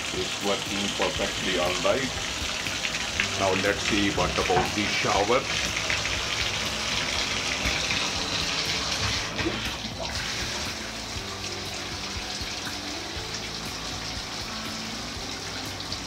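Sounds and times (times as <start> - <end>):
shower water splashing on tile: 0.7 - 16.0.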